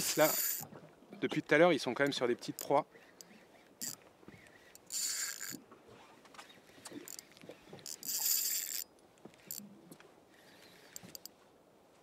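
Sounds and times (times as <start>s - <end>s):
fishing reel whirring: 0.0s - 0.6s, 2.6s - 4.0s, 4.7s - 5.6s, 7.0s - 8.9s.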